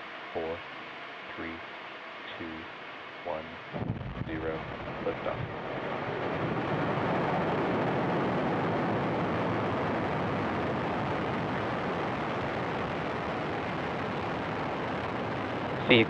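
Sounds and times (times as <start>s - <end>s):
rocket engines firing: 3.8s - 16.0s.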